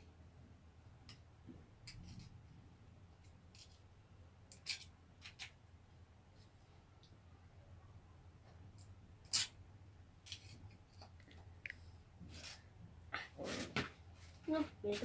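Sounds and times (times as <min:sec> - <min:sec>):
knife scraping a coin on concrete: 0:04.5 - 0:05.6, 0:09.2 - 0:09.6.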